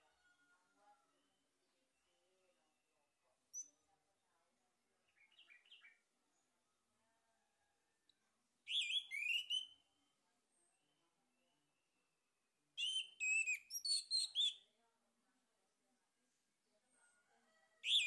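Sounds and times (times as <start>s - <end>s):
thrush whistling song: 8.7s - 9.8s, 12.8s - 14.6s.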